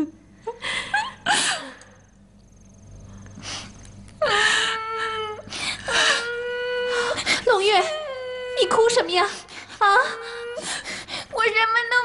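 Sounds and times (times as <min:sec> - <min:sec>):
sobbing breaths: 0:03.3 - 0:11.4
girl wailing cry: 0:04.2 - 0:08.9.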